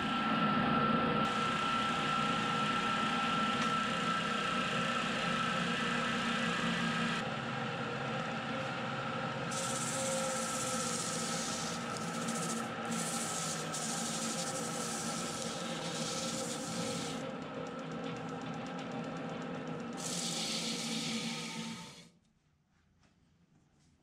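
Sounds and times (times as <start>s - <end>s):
sander motor hum: 0.0s - 22.1s
wood sanding on disc: 9.5s - 17.2s.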